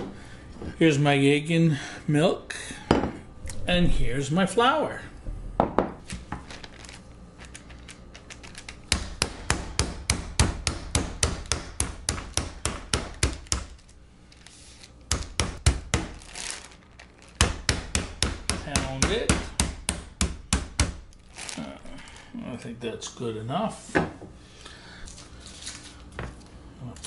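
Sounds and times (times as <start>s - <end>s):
meat mallet pounding on board: 8.9s - 13.7s, 15.1s - 16.2s, 17.4s - 21.0s.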